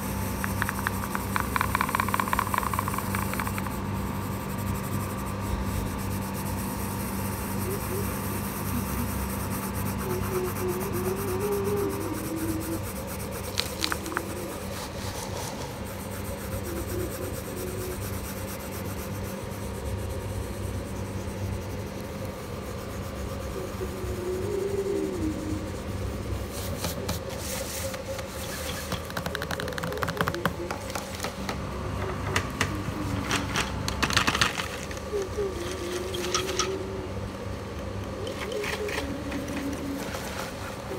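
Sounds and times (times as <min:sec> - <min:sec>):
pencil scratching on paper: 0:00.0 - 0:31.4.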